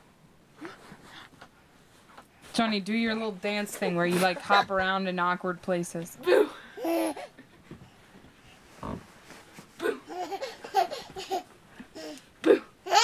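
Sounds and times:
baby laughing and babbling: 0:06.2 - 0:07.4, 0:09.8 - 0:13.0.

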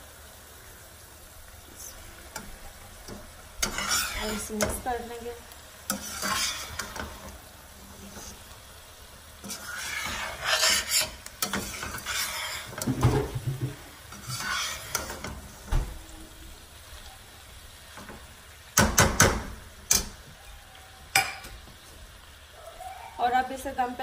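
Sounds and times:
vegetables sizzling: 0:00.0 - 0:24.0
metal spatula scraping a pan: 0:02.3 - 0:05.1, 0:05.8 - 0:08.6, 0:09.4 - 0:13.3, 0:14.1 - 0:15.6
spatula knocking on pan: 0:18.8 - 0:20.0.

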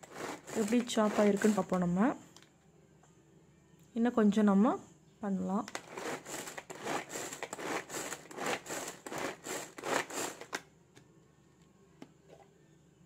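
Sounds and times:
pull-cord zipping: 0:00.0 - 0:01.8, 0:05.7 - 0:10.6
chopper blades cutting cabbage: 0:00.0 - 0:01.9, 0:05.7 - 0:10.6.

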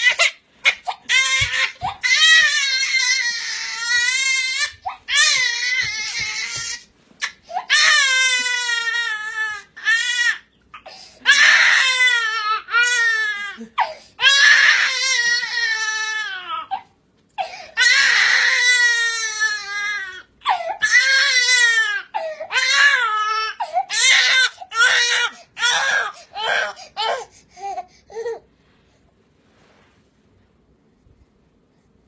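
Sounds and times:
infant crying: 0:00.0 - 0:28.4.

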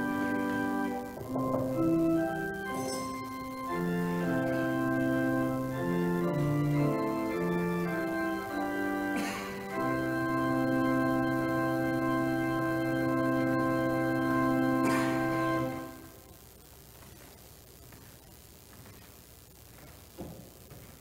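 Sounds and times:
organ playing sustained chords: 0:00.0 - 0:16.2.

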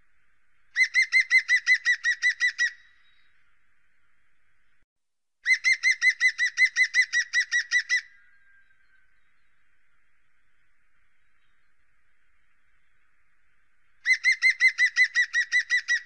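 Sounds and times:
woodpecker calling: 0:00.7 - 0:04.2, 0:05.4 - 0:11.8, 0:13.9 - 0:16.0.

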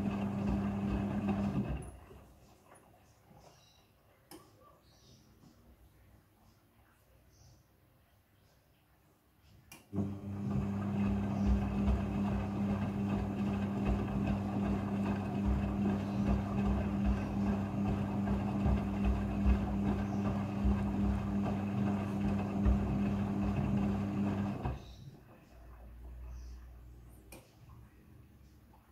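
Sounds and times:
washing machine hum: 0:00.0 - 0:02.5, 0:09.9 - 0:26.3.

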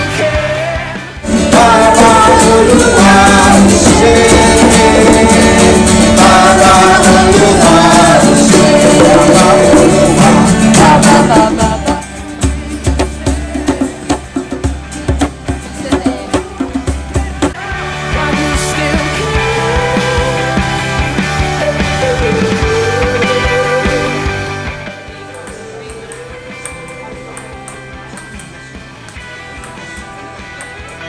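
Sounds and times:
group singing: 0:00.0 - 0:29.9
strummed acoustic guitars: 0:00.0 - 0:31.0
djembe hand drums: 0:01.3 - 0:17.6.

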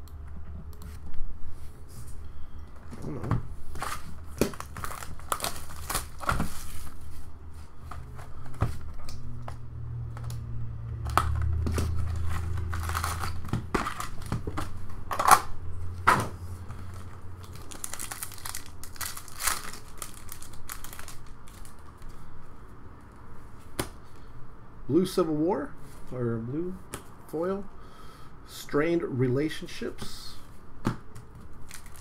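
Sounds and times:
wrapper and cardboard crinkling: 0:03.7 - 0:07.3, 0:11.2 - 0:15.5, 0:16.8 - 0:22.0, 0:31.5 - 0:32.0.

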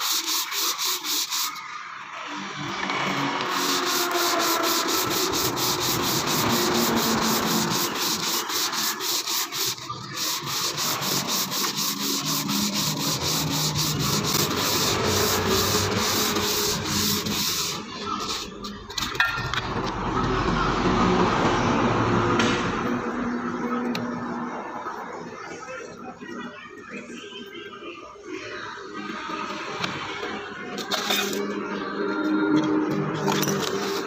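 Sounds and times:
sandpaper rubbing on metal: 0:00.0 - 0:01.6, 0:03.1 - 0:18.6.

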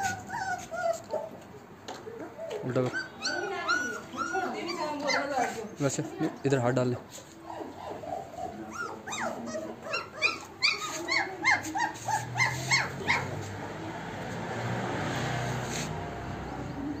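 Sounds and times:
puppy whimpering: 0:00.0 - 0:05.8, 0:07.4 - 0:13.5.

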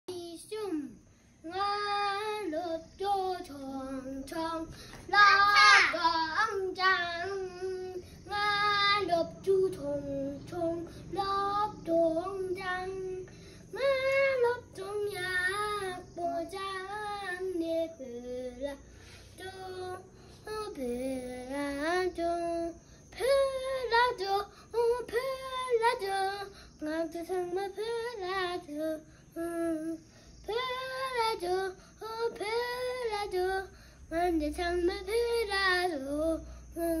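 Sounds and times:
boy singing: 0:00.1 - 0:37.0.

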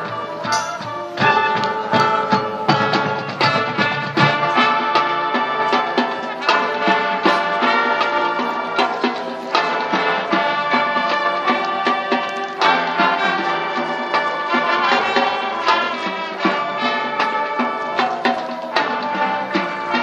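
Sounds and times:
marching band playing: 0:00.0 - 0:20.0
sharp percussion hits: 0:00.4 - 0:02.2.

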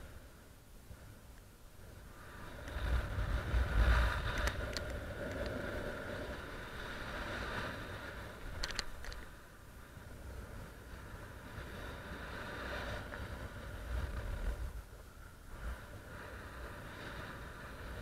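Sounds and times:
wind buffeting microphone: 0:01.8 - 0:18.0
sharp clicks: 0:08.6 - 0:09.3.

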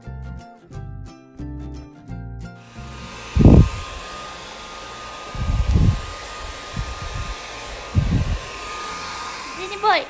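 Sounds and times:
hair dryer blowing: 0:02.6 - 0:10.0
loud low rumbles: 0:02.8 - 0:04.1, 0:05.2 - 0:08.6.

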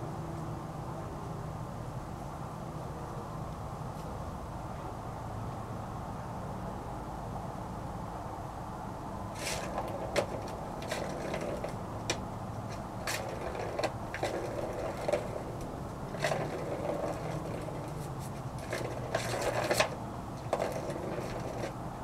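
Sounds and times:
plastic ball rolling in cat toy: 0:09.3 - 0:21.8.

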